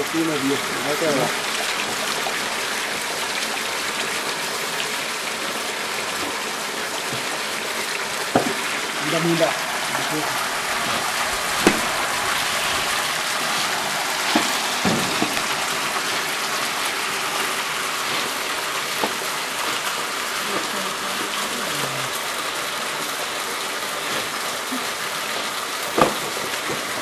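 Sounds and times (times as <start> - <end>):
water gushing and splashing: 0.0 - 27.0.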